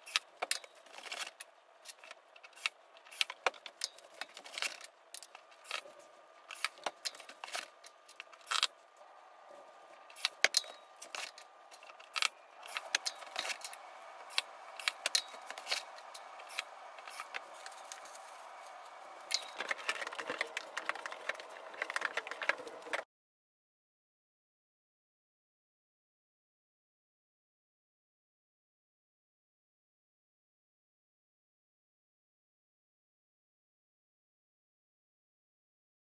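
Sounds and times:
metal frame parts clicking and rattling: 0:00.0 - 0:08.8, 0:09.9 - 0:23.0.

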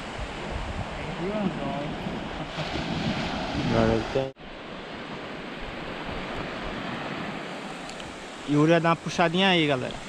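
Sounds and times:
wind on microphone: 0:00.0 - 0:04.3
surf on a beach: 0:00.0 - 0:10.0.

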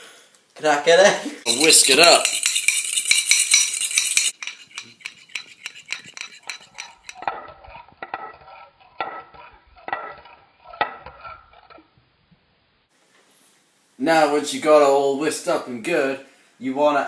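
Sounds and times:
fork clinking against bowl: 0:01.5 - 0:08.5
fork whisking egg in bowl: 0:01.5 - 0:11.8.

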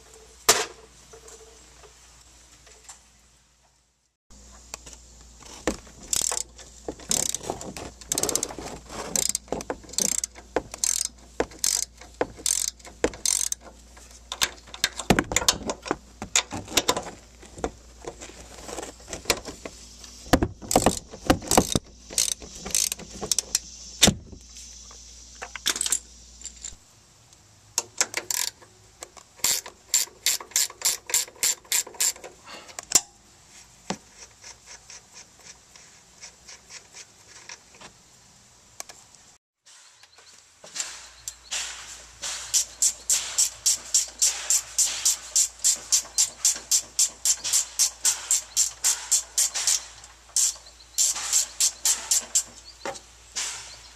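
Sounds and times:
hand ratchet clicking: 0:06.0 - 0:08.5, 0:09.1 - 0:13.7, 0:20.6 - 0:23.6, 0:28.0 - 0:28.6, 0:29.4 - 0:32.3, 0:42.5 - 0:52.5.

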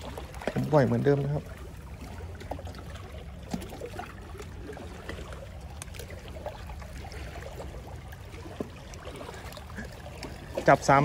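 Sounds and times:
low steady rumble: 0:00.0 - 0:11.0
water lapping among rocks: 0:00.0 - 0:11.0.

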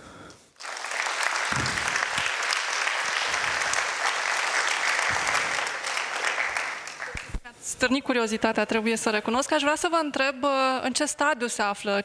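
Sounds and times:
audience applauding: 0:00.6 - 0:07.4.

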